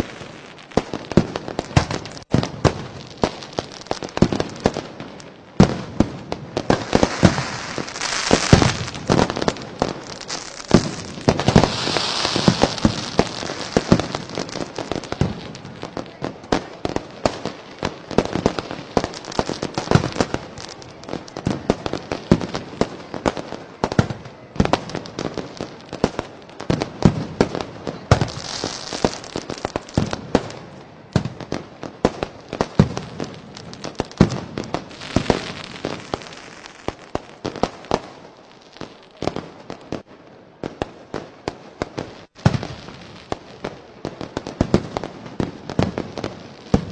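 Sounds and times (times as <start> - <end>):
hissing crackling sparks: 0.0 - 23.4, 24.7 - 30.6, 31.5 - 39.1
fireworks bangs and pops: 0.0 - 46.9.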